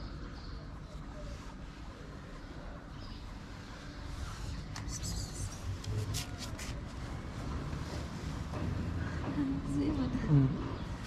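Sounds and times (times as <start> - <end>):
scratchy rustles: 5.5 - 7.2.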